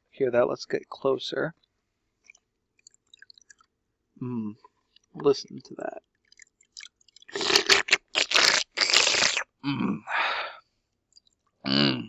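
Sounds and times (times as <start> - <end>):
faint clicks: 1.5 - 3.7
wet crunching and scraping of beads: 6.2 - 9.4.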